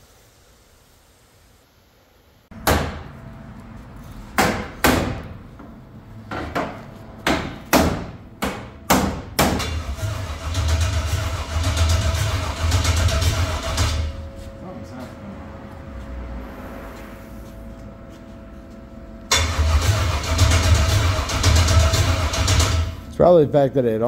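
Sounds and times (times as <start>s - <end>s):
truck engine pops and bangs: 4.4s - 14.1s, 19.4s - 23.0s.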